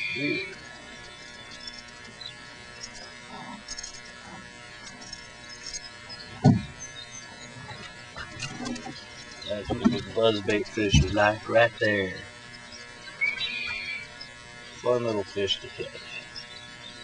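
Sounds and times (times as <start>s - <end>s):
electric buzz: 0.0s - 17.0s
dull thump: 6.4s - 6.8s.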